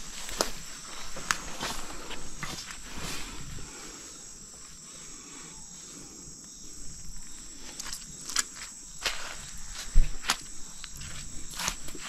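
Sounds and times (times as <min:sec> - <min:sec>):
footsteps in undergrowth: 0:00.0 - 0:03.5, 0:07.0 - 0:12.0
insects singing: 0:00.0 - 0:12.0.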